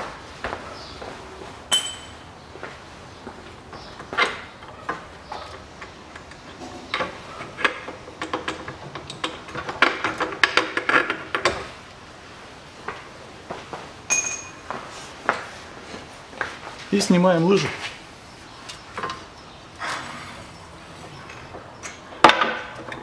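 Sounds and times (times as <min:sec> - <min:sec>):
metal clinks and knocks: 0:01.7 - 0:02.3, 0:14.1 - 0:14.6
ringing metallic ping: 0:01.7 - 0:02.3, 0:14.1 - 0:14.6.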